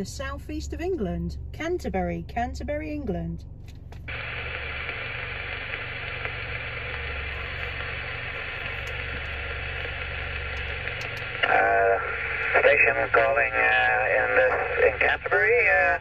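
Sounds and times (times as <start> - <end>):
low steady hum: 0.0 - 16.0
radio static hiss: 4.1 - 16.0.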